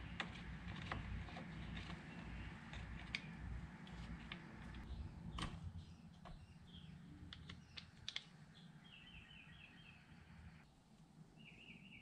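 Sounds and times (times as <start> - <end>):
bird chirping: 4.4 - 10.7, 11.4 - 12.0.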